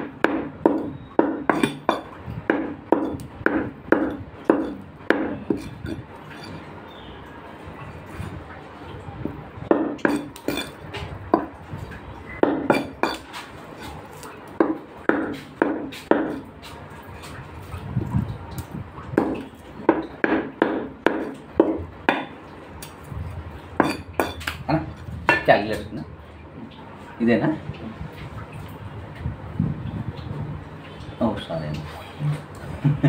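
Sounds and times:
meat cleaver chopping chicken: 2.5 - 6.0, 12.4 - 16.5.

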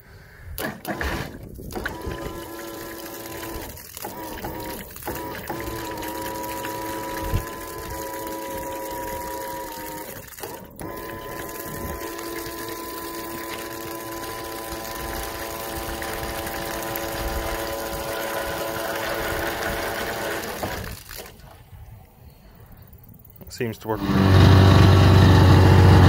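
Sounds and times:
electric pumps humming: 0.6 - 22.2, 23.2 - 26.0
water gushing from outlets: 1.8 - 21.5.

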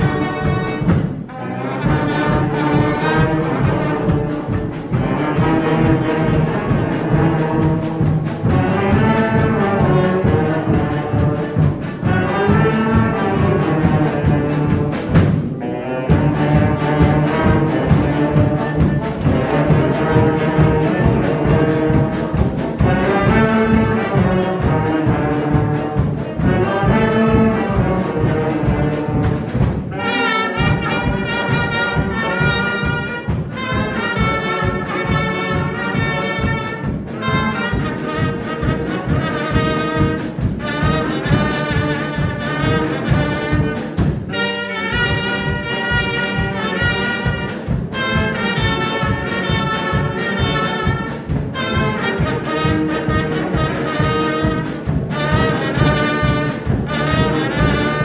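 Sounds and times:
brass band playing: 0.0 - 58.0
lead trumpet: 0.0 - 58.0
steady drum beat: 0.0 - 58.0.

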